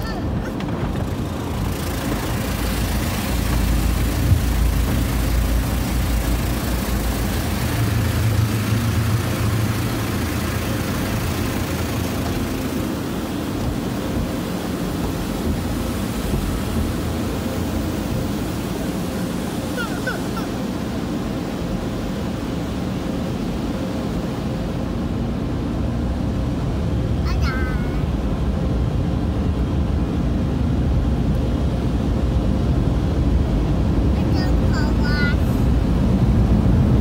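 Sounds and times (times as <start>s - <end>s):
water spraying against car: 0.0s - 24.6s
car wash machinery rumble: 0.0s - 37.0s.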